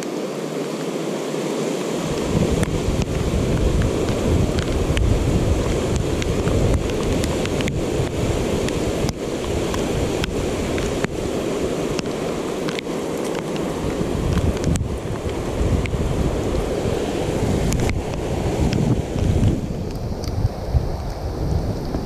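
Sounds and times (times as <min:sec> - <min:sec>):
floodwater rushing and churning: 0:00.0 - 0:22.0
wind buffeting the microphone: 0:01.9 - 0:22.0
light ticks: 0:02.6 - 0:05.1, 0:05.9 - 0:11.2, 0:11.9 - 0:16.0.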